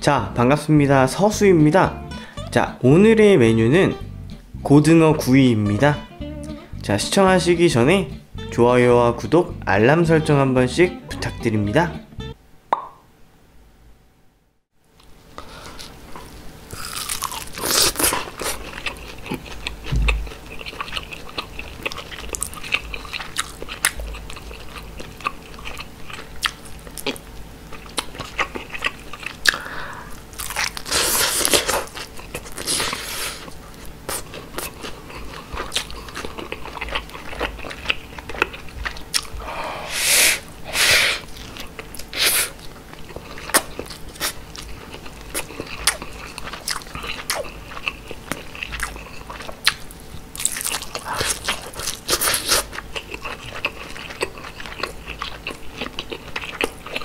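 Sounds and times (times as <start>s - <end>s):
wet chewing: 16.8s - 29.7s, 30.4s - 39.4s, 41.2s - 57.0s.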